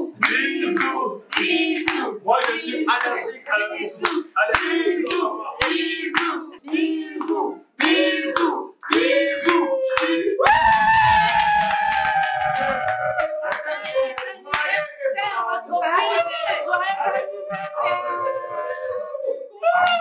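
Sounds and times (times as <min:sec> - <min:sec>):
sharp hand claps: 0:00.2 - 0:03.1, 0:04.0 - 0:14.8
voices in rapid phrases: 0:13.3 - 0:19.7.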